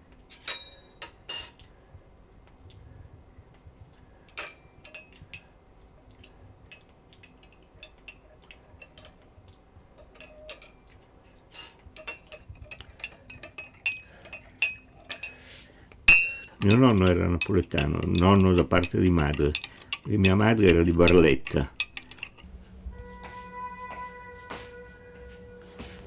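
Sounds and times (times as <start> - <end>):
teaspoon clinking in cup: 16.1 - 22.4.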